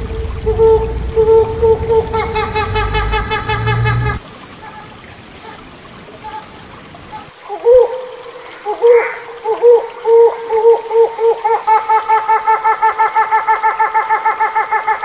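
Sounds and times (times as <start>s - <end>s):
hornbill calling: 0.0s - 5.6s
background hiss: 0.0s - 13.3s.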